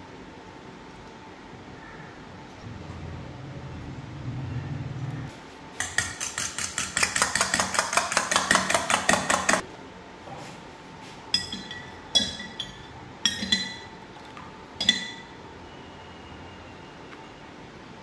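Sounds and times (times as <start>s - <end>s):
fork whisking eggs in metal bowl: 5.8s - 9.6s
metal spoon clinking glass jug: 11.4s - 13.9s, 14.8s - 15.3s.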